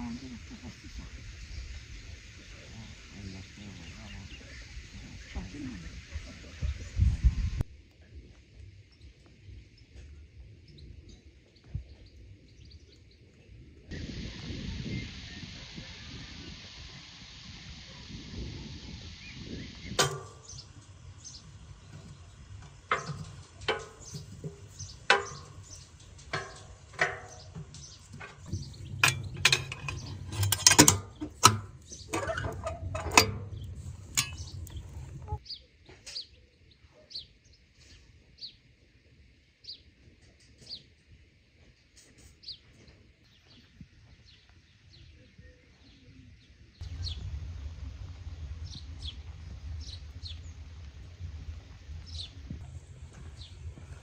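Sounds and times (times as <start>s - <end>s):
bird chirping: 19.1s - 37.3s, 42.4s - 52.6s
kitchenware knocking and clinking: 26.4s - 35.2s.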